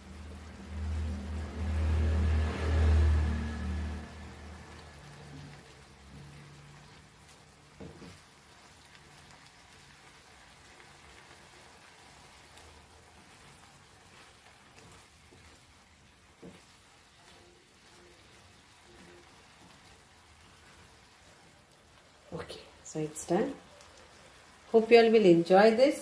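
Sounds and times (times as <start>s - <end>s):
spatula scraping food in pan: 5.4s - 22.1s.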